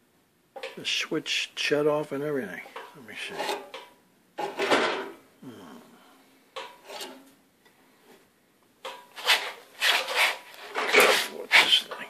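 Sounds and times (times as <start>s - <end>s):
steel bar scraping on metal: 2.7s - 4.6s, 6.6s - 7.3s, 8.9s - 11.9s.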